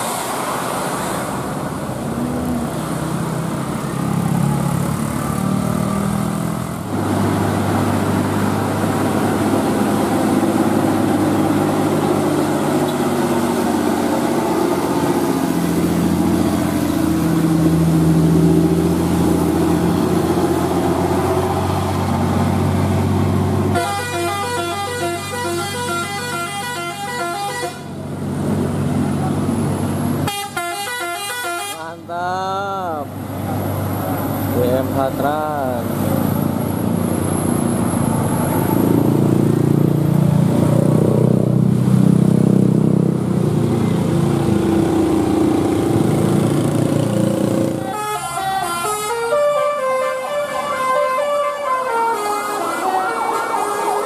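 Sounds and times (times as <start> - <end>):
bus engines passing: 0.0 - 54.0
multi-tone bus horn tune: 23.7 - 28.0, 30.2 - 32.0, 47.7 - 54.0.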